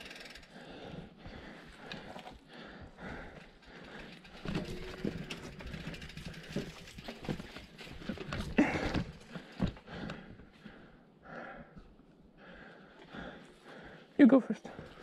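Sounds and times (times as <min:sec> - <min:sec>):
mountain bike clattering over stone: 0:04.0 - 0:09.8.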